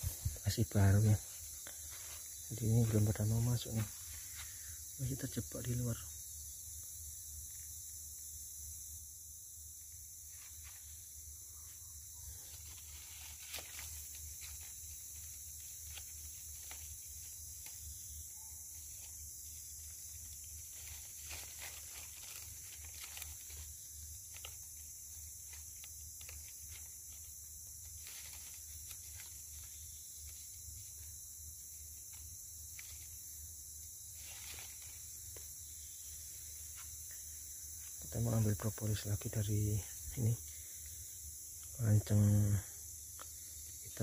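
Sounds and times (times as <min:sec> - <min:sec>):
insect chorus drone: 0:00.0 - 0:44.0
dry leaves crackling: 0:01.0 - 0:04.8, 0:10.2 - 0:11.2, 0:11.8 - 0:39.1.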